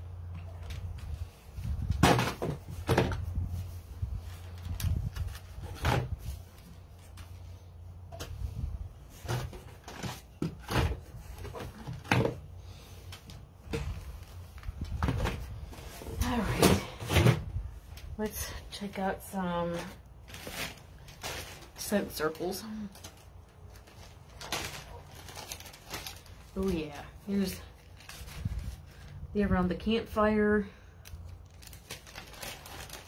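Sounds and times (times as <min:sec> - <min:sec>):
packages knocking and rustling: 0:01.8 - 0:03.4, 0:09.1 - 0:12.5, 0:13.6 - 0:17.5, 0:19.7 - 0:22.0, 0:22.8 - 0:26.9, 0:31.4 - 0:33.0.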